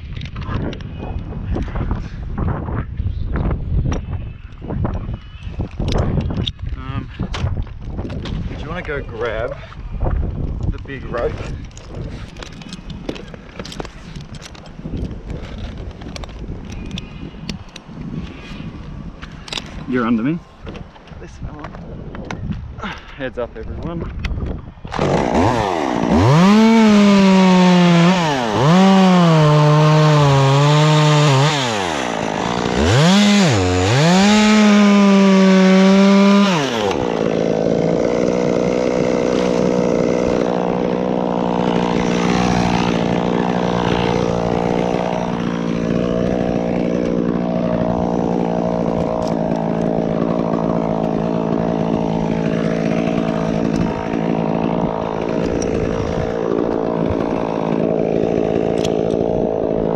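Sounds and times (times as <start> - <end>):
chainsaw engine running steadily: 24.9 - 59.9
chainsaw revving and cutting: 24.9 - 59.9.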